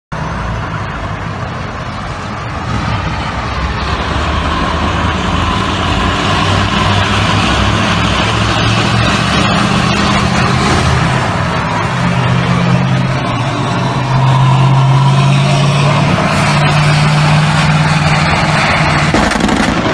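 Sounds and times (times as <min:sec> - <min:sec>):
heavy vehicle engines running: 0:00.1 - 0:19.9.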